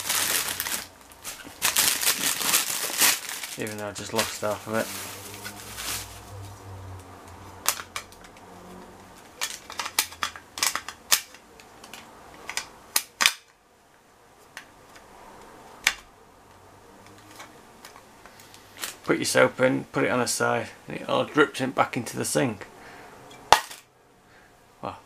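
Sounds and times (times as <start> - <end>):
plastic wrapping rustling: 0.0 - 6.7, 17.3 - 19.2.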